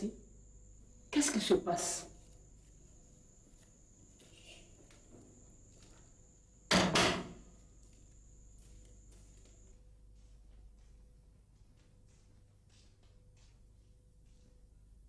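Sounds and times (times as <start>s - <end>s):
low room noise: 0.0s - 15.0s
wooden door banging shut: 6.7s - 7.4s.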